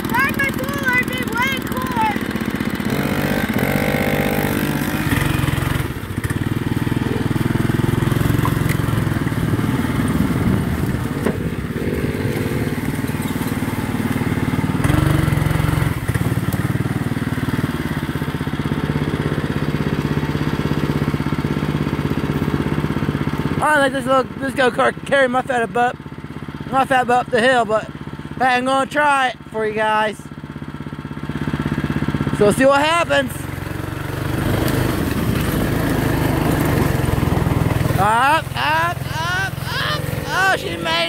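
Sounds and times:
dirt bike engine: 0:00.0 - 0:41.0
go-kart engine running: 0:00.0 - 0:41.0
tyres over dry leaves: 0:08.4 - 0:14.8, 0:34.4 - 0:38.0.

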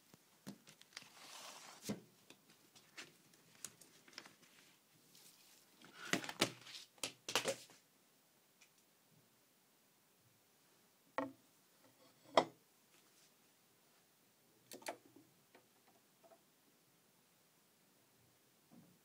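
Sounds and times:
vinyl record and sleeve handling: 0:00.0 - 0:07.8.

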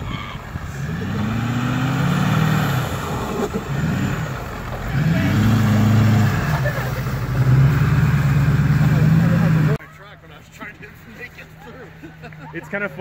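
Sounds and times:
truck engine revving hard: 0:00.0 - 0:09.8.

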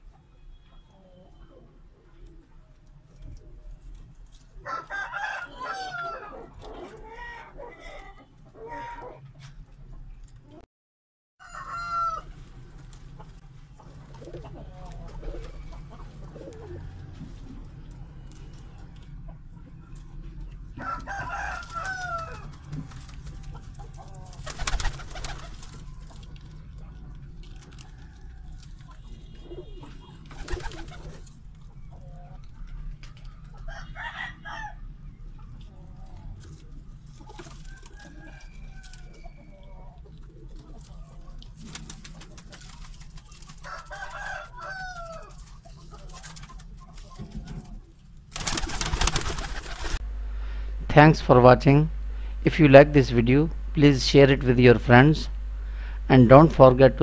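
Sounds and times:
pigeons cooing: 0:13.8 - 0:17.5, 0:29.3 - 0:32.4
low steady hum: 0:48.8 - 0:57.0.

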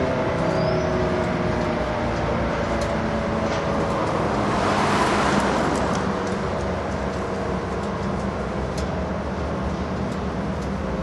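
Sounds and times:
warning siren steady tone: 0:00.0 - 0:04.5.

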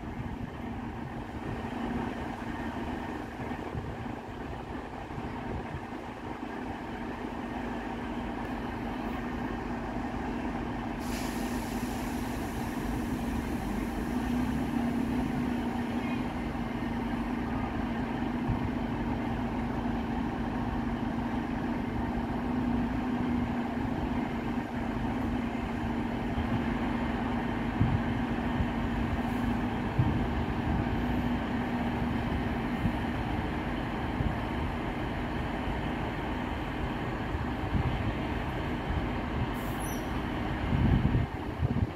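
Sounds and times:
train diesel engines running: 0:00.0 - 0:41.9
hiss of air: 0:10.9 - 0:15.3, 0:39.5 - 0:40.2.

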